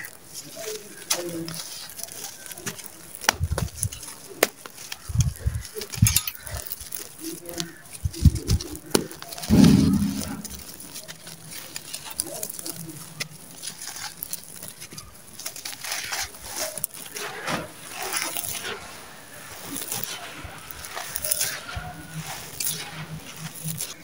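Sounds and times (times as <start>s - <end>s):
loud low sound: 9.5s - 10.7s.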